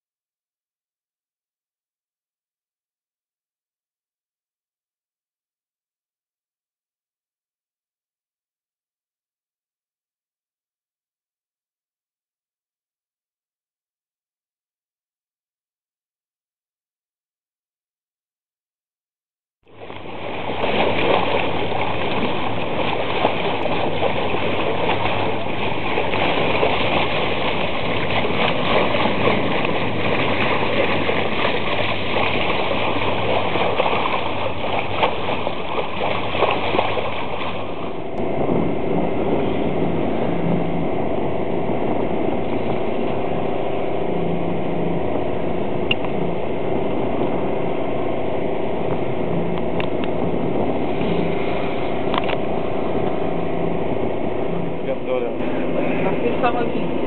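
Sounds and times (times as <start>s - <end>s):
boat engine humming: 19.6s - 57.0s
water rushing along boat bow: 19.6s - 57.0s.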